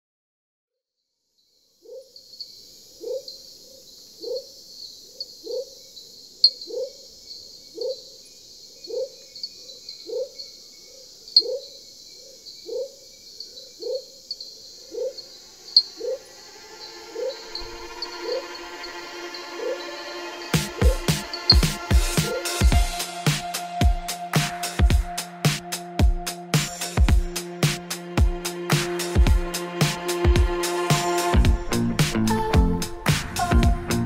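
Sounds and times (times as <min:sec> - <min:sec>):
insects chirping: 0:01.2 - 0:28.7
low rising animal call: 0:15.0 - 0:22.5.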